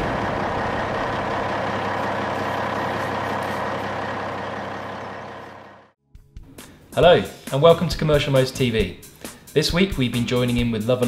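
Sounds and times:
heavy truck engine running: 0.0 - 6.0.

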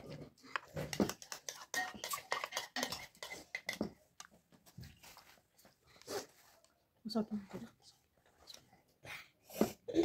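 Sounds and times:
spoon clinking on bowls: 1.0 - 3.9.

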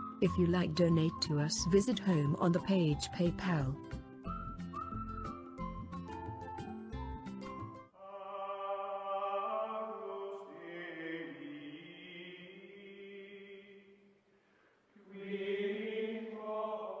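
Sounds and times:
choir singing sustained chords: 8.0 - 14.0, 15.0 - 17.0.

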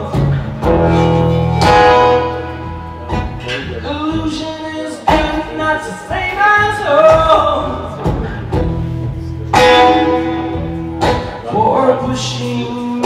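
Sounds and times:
person singing: 0.0 - 2.8, 3.4 - 13.0
guitar chords ringing: 0.0 - 5.9, 8.6 - 13.0.

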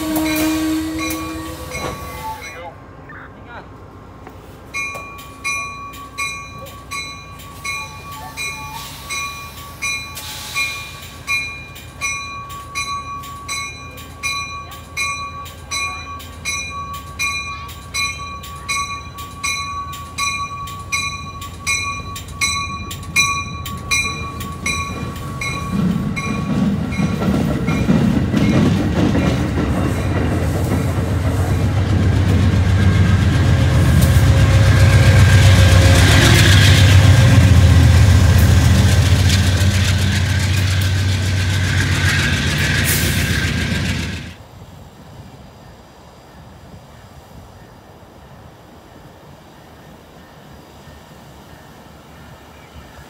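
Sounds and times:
low rumble of train: 0.0 - 53.0
train bell ringing: 0.2 - 2.8, 4.7 - 30.3.

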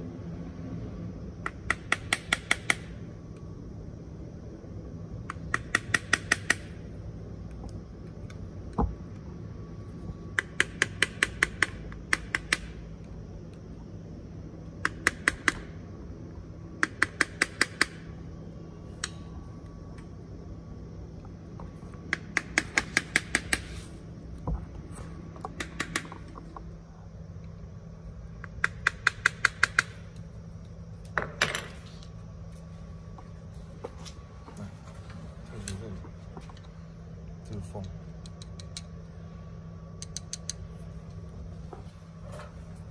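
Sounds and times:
steady low hum: 0.0 - 42.9
hand tool clicking: 40.0 - 40.6.

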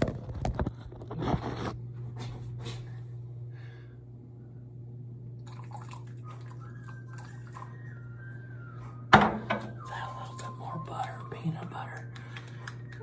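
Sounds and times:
steady low hum: 0.0 - 13.0
water trickling into a bowl: 5.4 - 7.9.

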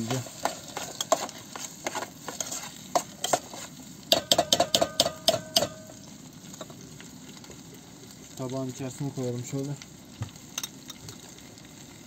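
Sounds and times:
faint sizzle: 0.0 - 12.0
metal spoon scraping saucepan: 0.1 - 5.7
spoon tapping ringing pot: 4.1 - 6.0.

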